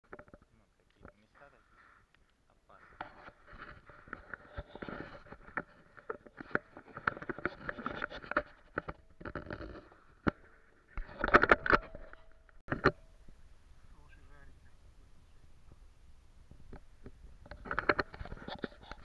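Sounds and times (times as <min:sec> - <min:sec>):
camera handling knocks and scraping: 0:00.1 - 0:01.2, 0:03.0 - 0:13.0, 0:16.5 - 0:19.0.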